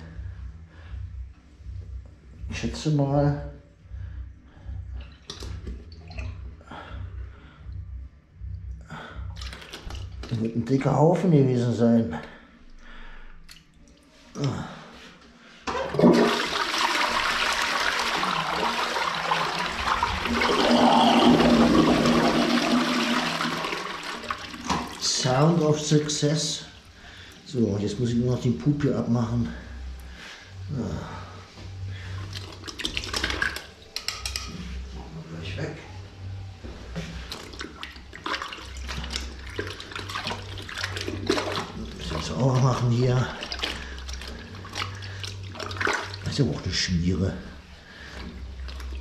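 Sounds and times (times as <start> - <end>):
low steady hum: 0.0 - 49.0
toilet flushing: 15.6 - 28.3, 32.0 - 33.8, 37.0 - 49.0.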